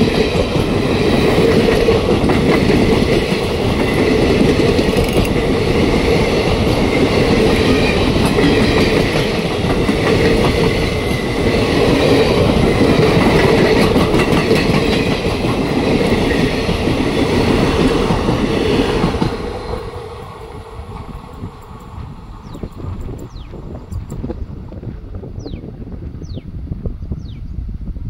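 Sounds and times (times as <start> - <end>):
train wheels clattering over rail joints: 0.0 - 20.2.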